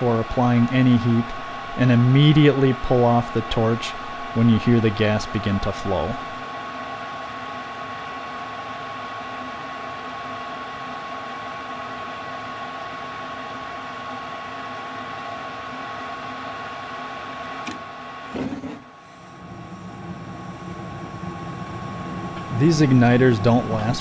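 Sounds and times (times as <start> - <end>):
furnace inducer motor whine: 0.0 - 24.0
propane torch flame hissing: 19.0 - 24.0.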